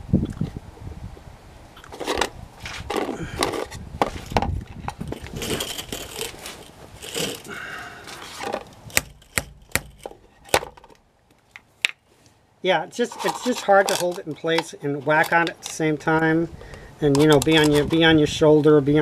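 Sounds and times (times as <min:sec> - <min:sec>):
hand tools rustling and knocking: 0:01.9 - 0:12.0, 0:12.9 - 0:18.1
sharp clicks and knocks: 0:08.4 - 0:12.0.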